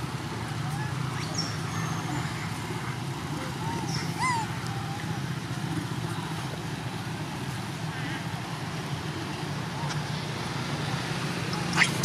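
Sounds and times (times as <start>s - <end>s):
baby monkey squealing: 3.6s - 4.5s, 11.7s - 12.0s.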